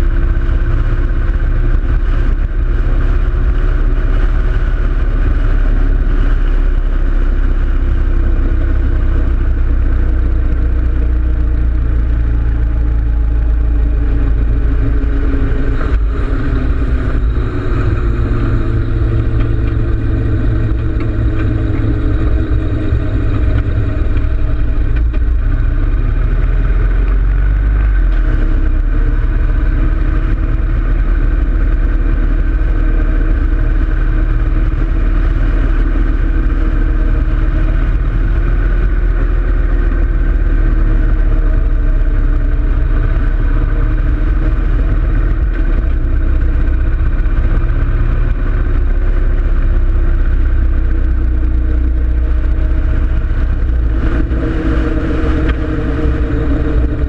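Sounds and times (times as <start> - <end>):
motorcycle engine running: 0.0 - 57.0
wind buffeting microphone: 51.2 - 57.0.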